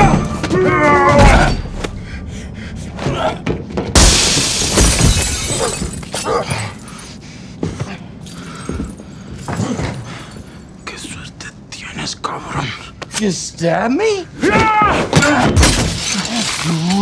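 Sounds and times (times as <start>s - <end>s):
shattering crash: 4.0s - 6.3s.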